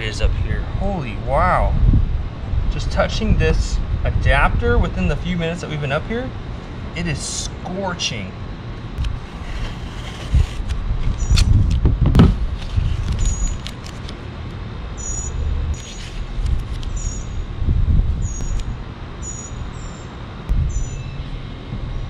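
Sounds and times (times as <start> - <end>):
tape pulled and crackling: 9.0 - 11.8.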